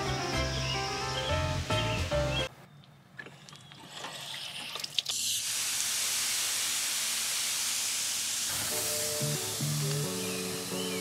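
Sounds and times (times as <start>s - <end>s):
water spraying with steady hiss: 3.9s - 11.0s.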